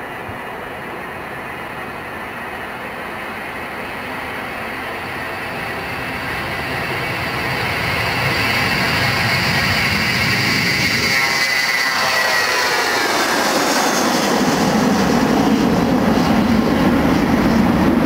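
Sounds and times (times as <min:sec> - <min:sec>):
jet engines at takeoff power: 0:00.0 - 0:18.0.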